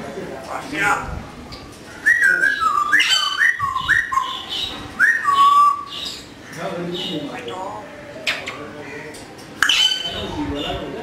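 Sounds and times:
parrot whistling: 2.0s - 6.2s.

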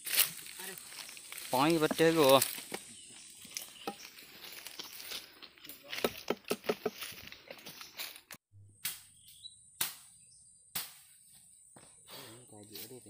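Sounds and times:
footsteps crunching through dry leaves: 0.0s - 8.4s.

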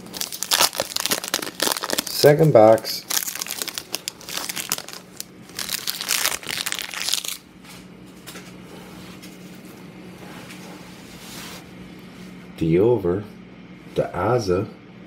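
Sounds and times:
foil wrapper crinkling: 0.0s - 7.7s
low steady hum: 0.0s - 15.0s.

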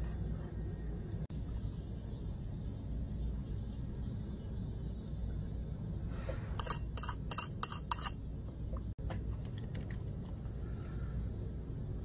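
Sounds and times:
file scraping steel disc: 6.6s - 8.2s.

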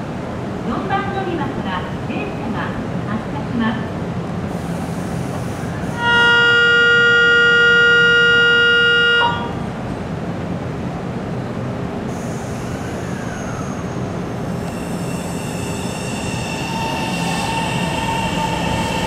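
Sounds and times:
electric train humming: 4.4s - 19.0s
train horn blast: 6.0s - 9.6s.

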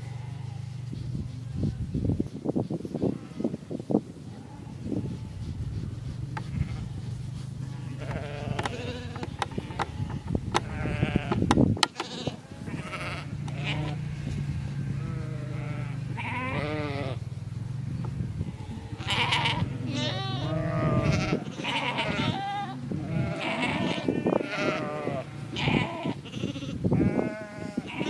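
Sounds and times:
sheep and lambs bleating: 0.0s - 0.9s, 3.0s - 3.7s, 6.4s - 17.2s, 18.4s - 28.0s.

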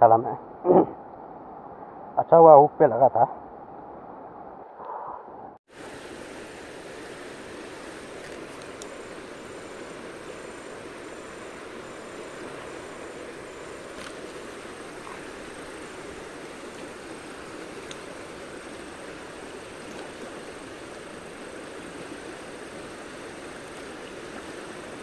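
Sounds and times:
river water rushing: 5.7s - 25.0s.

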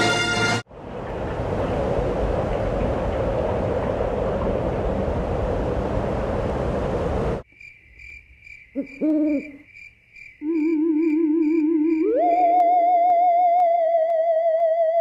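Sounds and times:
rushing noise: 0.0s - 7.4s
owl hooting: 8.8s - 9.6s, 10.4s - 13.4s
warbling electronic tone: 10.5s - 15.0s.

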